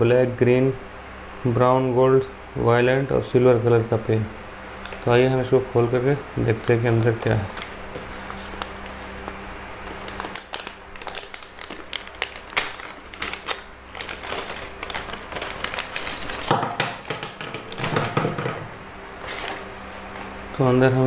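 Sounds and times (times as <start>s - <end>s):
plastic pouch crinkling: 6.5s - 18.2s.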